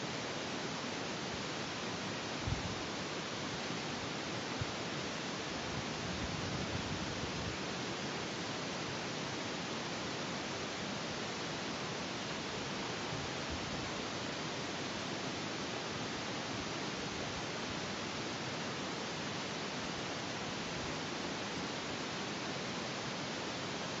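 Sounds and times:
wind rumble on microphone: 0:02.4 - 0:02.8, 0:05.6 - 0:07.6.

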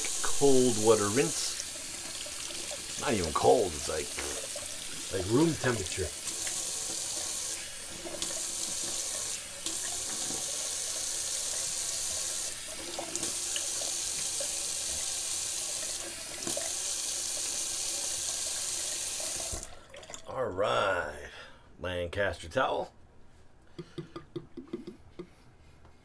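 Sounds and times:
sink tap running: 0:00.0 - 0:20.2
face rinsing in water: 0:00.0 - 0:20.3.

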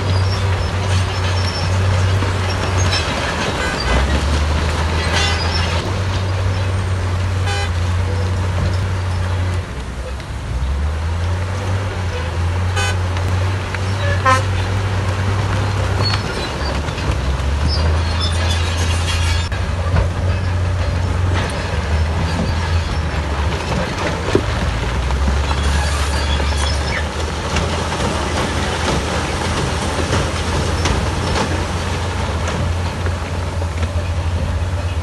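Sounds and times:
high metallic squeaks: 0:00.0 - 0:04.3, 0:04.9 - 0:05.8, 0:17.6 - 0:19.5, 0:25.4 - 0:27.2
heavy diesel engines droning: 0:00.0 - 0:35.0
short horn toots: 0:14.0 - 0:14.6.

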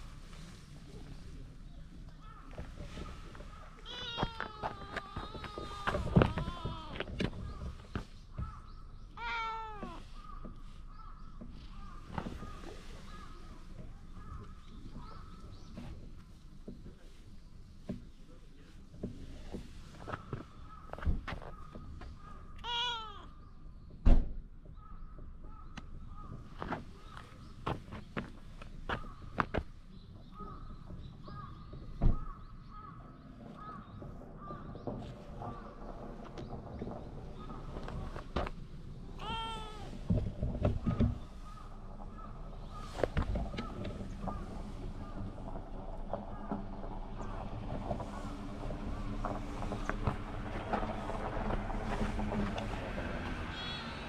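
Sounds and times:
kitten meowing loudly: 0:03.8 - 0:06.9, 0:09.2 - 0:10.0, 0:22.6 - 0:23.3, 0:39.2 - 0:40.0, 0:53.5 - 0:54.0.

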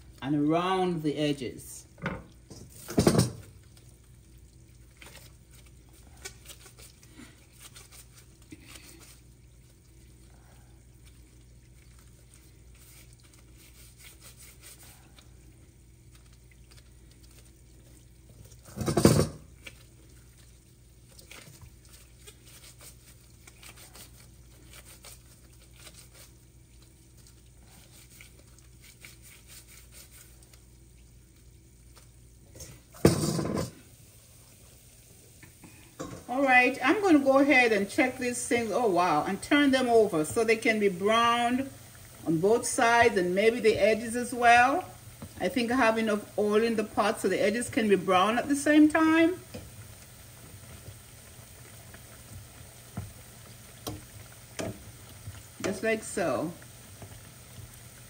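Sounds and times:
low steady hum: 0:00.0 - 0:58.0
hands shaping dough in metal bowl: 0:02.1 - 0:33.8.

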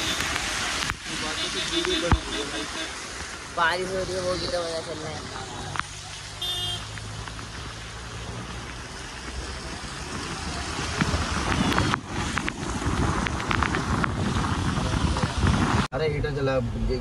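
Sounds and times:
car engine hum: 0:00.0 - 0:17.0
tyre and wind noise: 0:06.9 - 0:16.0.

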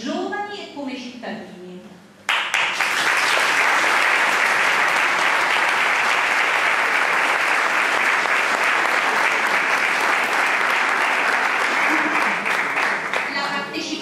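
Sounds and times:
audience applause: 0:02.3 - 0:13.4.

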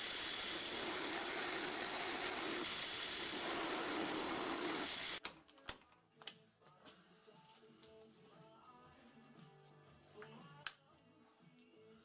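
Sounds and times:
drill machining whirr: 0:00.0 - 0:05.2.

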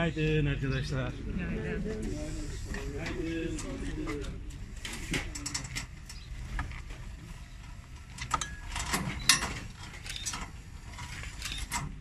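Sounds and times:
loading ramp mechanism clicks and clanks: 0:02.7 - 0:12.0.

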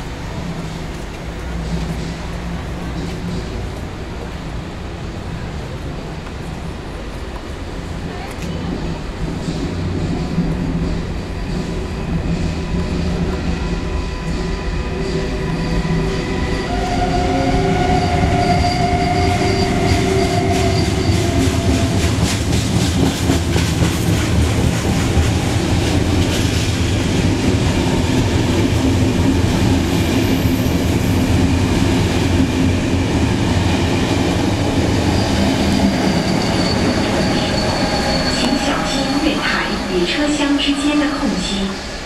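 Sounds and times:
train passing with rumble: 0:00.0 - 0:42.0
locomotive whining: 0:11.1 - 0:22.5, 0:28.9 - 0:42.0.

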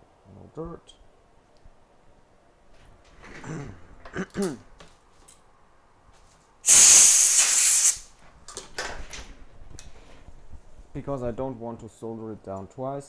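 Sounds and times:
hissing spray blast: 0:06.6 - 0:08.1.

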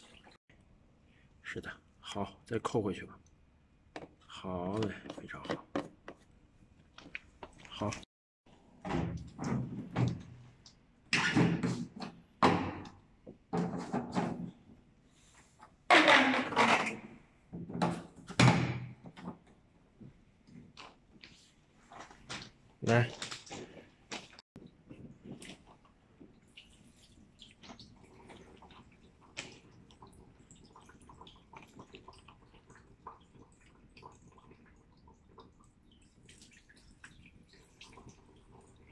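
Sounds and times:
faucet water splashing into basin: 0:26.3 - 0:38.9.

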